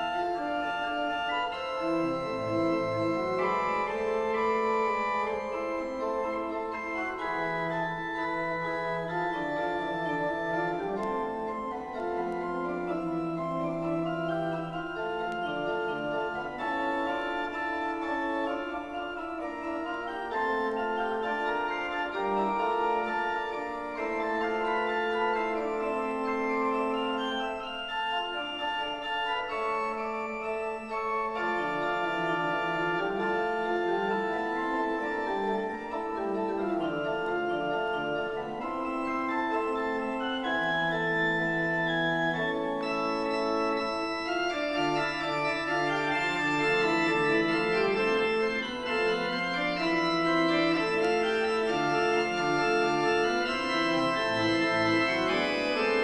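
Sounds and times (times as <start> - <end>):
pipe organ playing counterpoint: 0.0 - 56.0.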